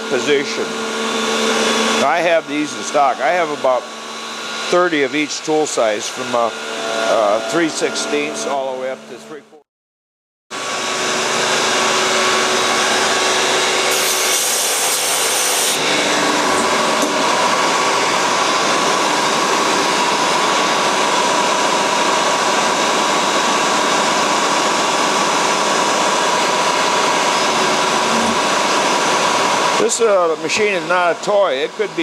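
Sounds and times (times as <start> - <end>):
mill cutting metal: 0.0 - 9.4, 10.6 - 32.0
spindle whine: 0.0 - 9.6, 15.8 - 20.9, 25.9 - 30.0.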